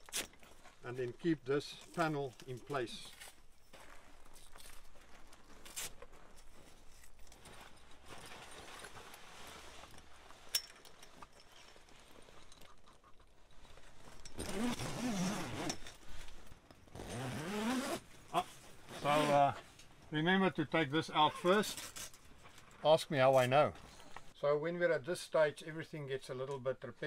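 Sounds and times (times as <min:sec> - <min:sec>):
canvas rustling: 0:01.8 - 0:12.8, 0:13.4 - 0:20.2.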